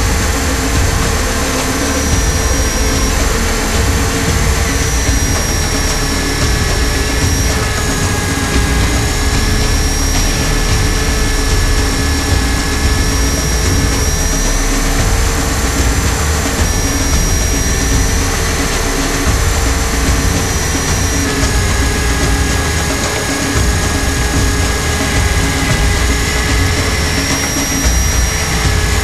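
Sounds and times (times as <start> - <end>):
heavy low rumble: 0.0 - 29.0.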